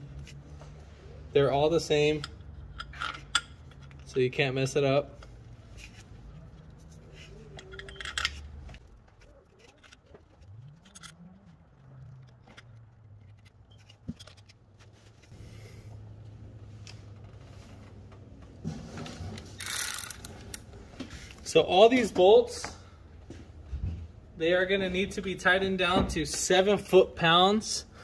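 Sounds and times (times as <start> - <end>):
metal bolts clicking and scraping: 1.7 - 14.7, 19.4 - 20.7.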